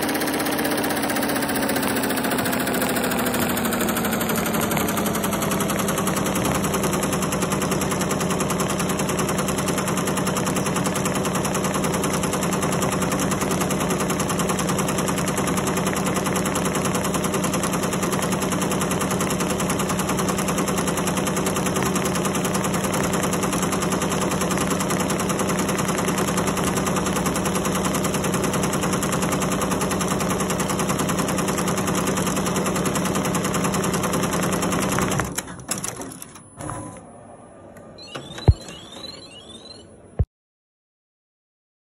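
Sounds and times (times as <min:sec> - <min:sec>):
machine running hum: 0:00.0 - 0:11.2.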